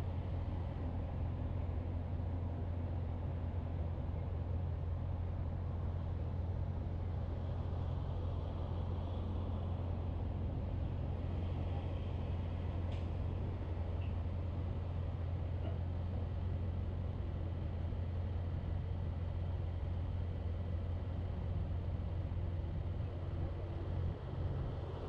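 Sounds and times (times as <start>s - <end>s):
car engine and road noise: 0.0s - 25.0s
faint click: 12.9s - 13.1s.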